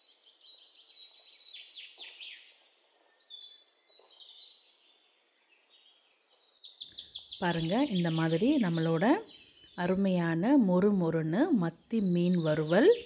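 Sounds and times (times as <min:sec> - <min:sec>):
birds chirping and singing: 0:00.0 - 0:13.0.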